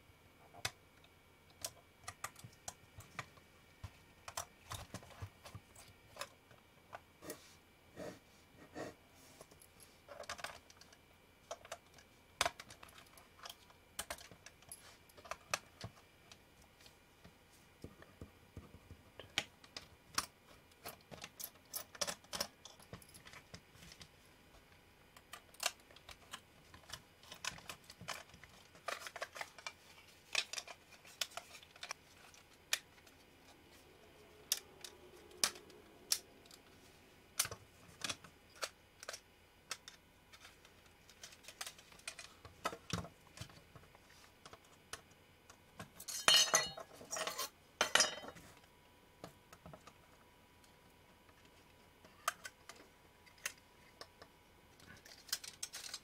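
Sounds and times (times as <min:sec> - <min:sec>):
plastic parts clattering: 0:25.2 - 0:33.2, 0:37.4 - 0:43.8, 0:54.8 - 0:56.0.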